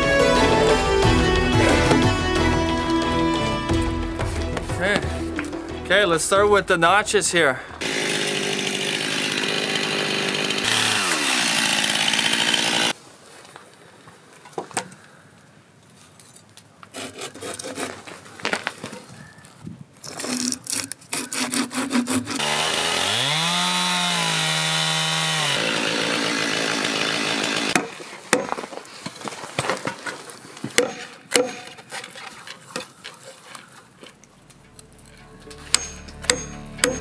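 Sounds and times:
chainsaw cutting: 7.8s - 13.0s, 20.2s - 28.1s, 35.0s - 37.0s.

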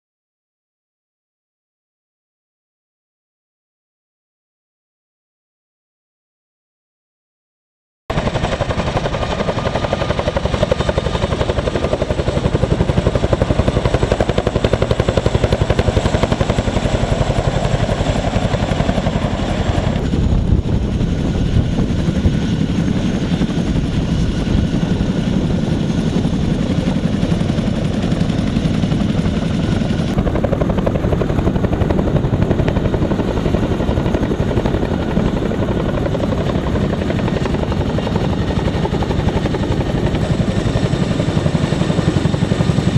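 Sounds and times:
helicopter rotor beat: 8.1s - 42.9s
turbine noise: 16.0s - 38.7s.

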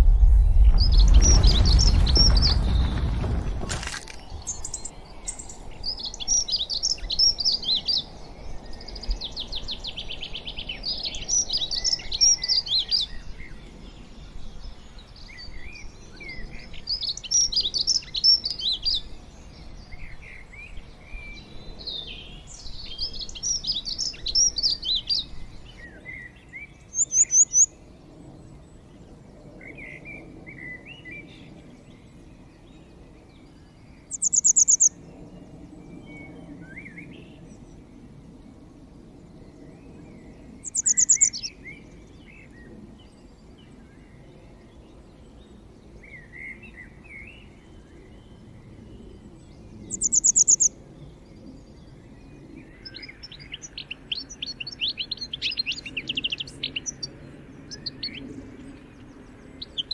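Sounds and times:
deep rumble: 0.0s - 6.3s
songbird singing: 0.0s - 59.9s.

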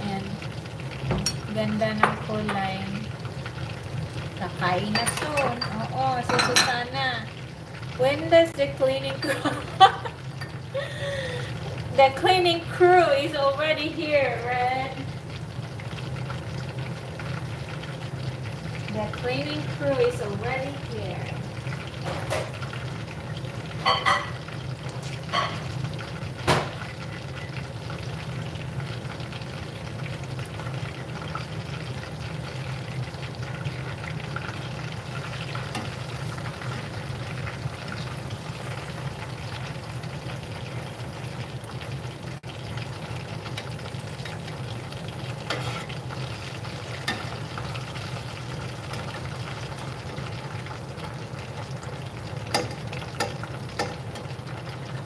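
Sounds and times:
chicken sizzling in hot oil: 0.0s - 55.0s
metal tongs clicking on pot: 52.5s - 54.3s.

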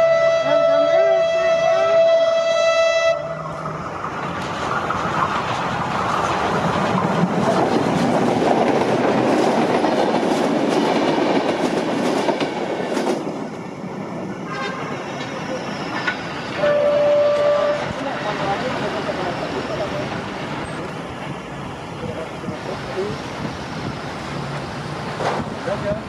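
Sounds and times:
train horn: 0.0s - 3.5s, 14.5s - 15.0s, 16.6s - 18.0s
train wheels rushing on rails: 3.1s - 26.0s
wheels clicking over rail joints: 4.0s - 13.4s.

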